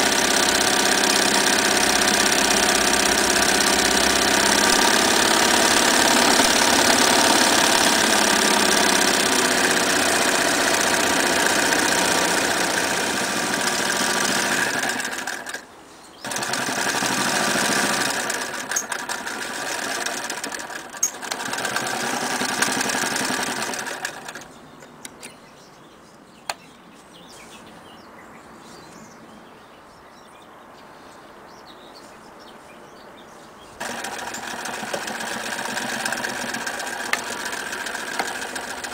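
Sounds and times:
sewing machine stitching fabric: 0.0s - 15.6s, 16.2s - 24.5s, 33.8s - 38.9s.

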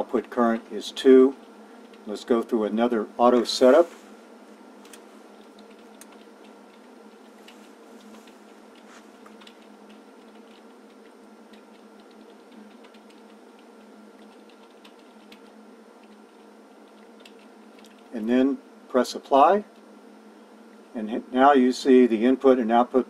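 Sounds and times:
faint steady hum: 0.0s - 23.0s.

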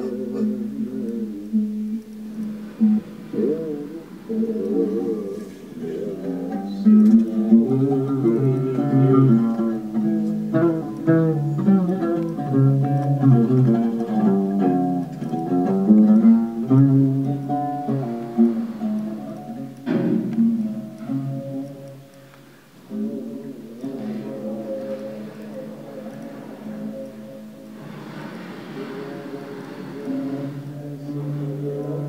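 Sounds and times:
plucked string instrument melody: 0.0s - 22.4s.

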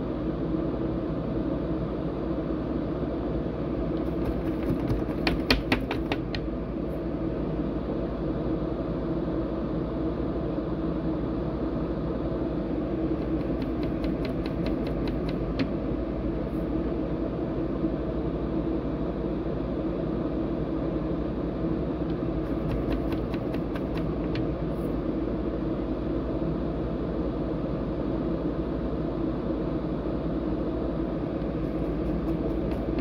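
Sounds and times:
fan humming: 0.0s - 33.0s.

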